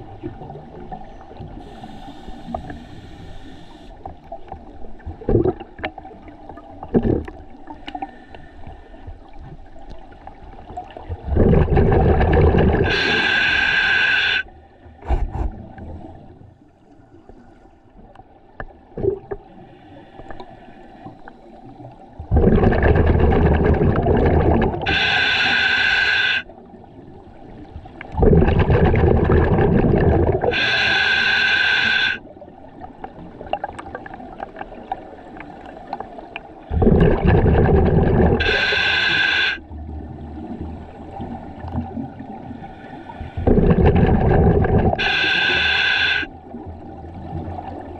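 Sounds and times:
regulator inhalation hiss: 0:01.6 - 0:04.0, 0:12.8 - 0:14.5, 0:24.8 - 0:26.5, 0:30.4 - 0:32.2, 0:38.4 - 0:39.6, 0:45.0 - 0:46.3
exhalation bubbling underwater: 0:05.2 - 0:06.0, 0:06.8 - 0:07.4, 0:11.1 - 0:13.4, 0:19.0 - 0:19.4, 0:22.2 - 0:25.1, 0:28.1 - 0:30.7, 0:36.7 - 0:38.8, 0:43.4 - 0:45.3.

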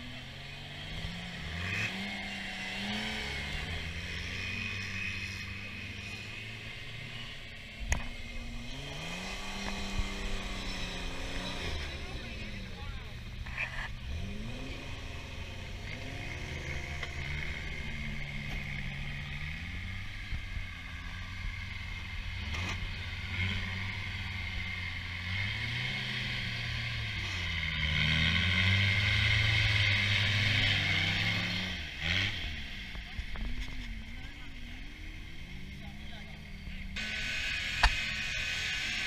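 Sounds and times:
buggy engine revving: 0:00.0 - 0:39.0.

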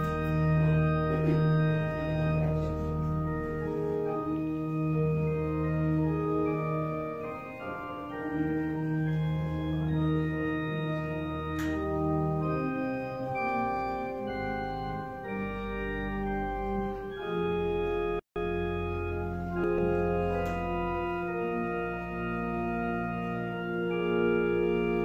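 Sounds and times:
organ playing slow chords: 0:00.0 - 0:25.0.

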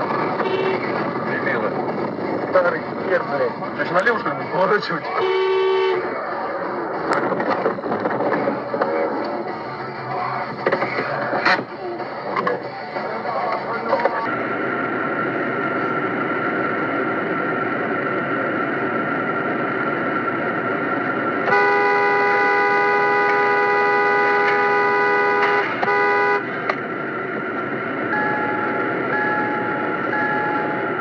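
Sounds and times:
car noise: 0:00.0 - 0:31.0
car horn: 0:00.4 - 0:01.0, 0:05.1 - 0:06.1, 0:21.5 - 0:26.6.

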